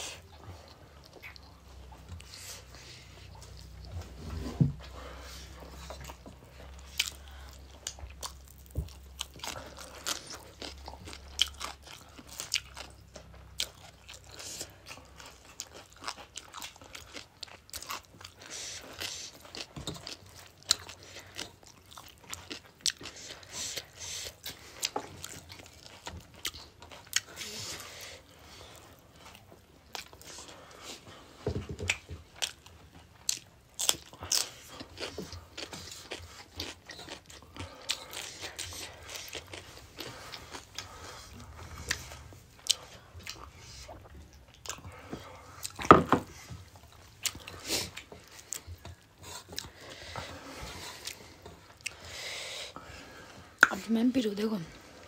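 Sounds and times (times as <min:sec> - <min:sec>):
people chewing food: 0:00.0 - 0:55.0
wet mouth clicks: 0:53.6 - 0:53.8.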